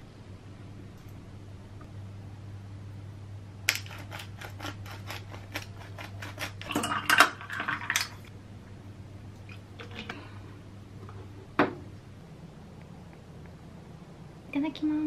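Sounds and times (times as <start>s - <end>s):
low hum: 0.0s - 5.9s.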